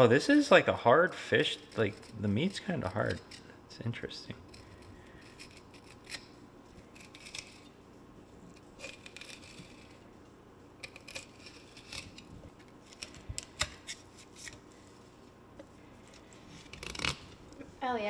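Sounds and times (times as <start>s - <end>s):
knife scraping fish: 1.4s - 3.6s, 4.4s - 7.8s, 8.5s - 10.1s, 10.8s - 15.0s, 16.1s - 17.4s.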